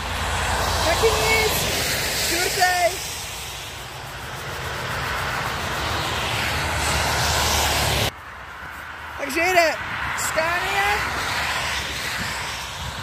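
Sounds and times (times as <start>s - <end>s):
truck engine rumble: 0.0s - 9.0s
tyre hiss on wet road: 0.1s - 9.1s, 11.1s - 13.0s.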